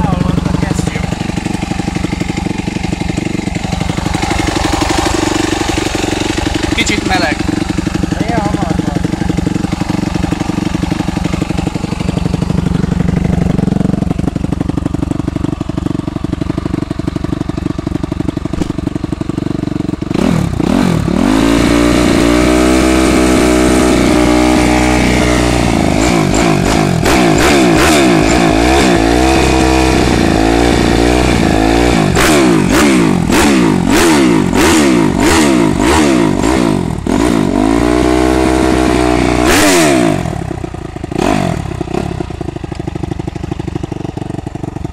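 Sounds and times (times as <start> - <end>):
motorcycle engine revving: 0.0 - 44.9
exhaust pops: 18.4 - 19.0.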